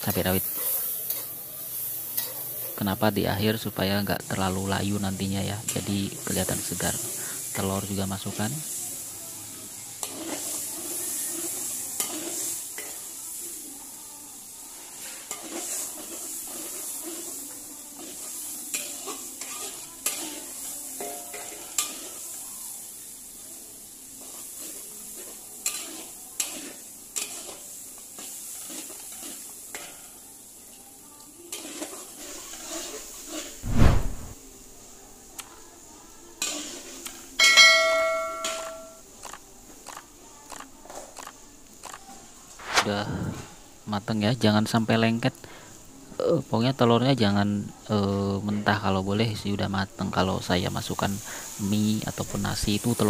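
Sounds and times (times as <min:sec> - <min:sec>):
food sizzling: 0:00.0 - 0:53.0
metal ladle scraping a wok: 0:18.0 - 0:20.3
ringing metal clang: 0:37.4 - 0:39.0.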